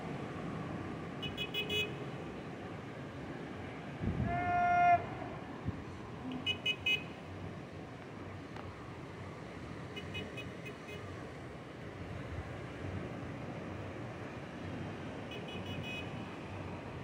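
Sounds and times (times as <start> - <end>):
outdoor background noise: 0.0 - 17.0
vehicle horn honk: 1.2 - 2.0, 15.3 - 16.3.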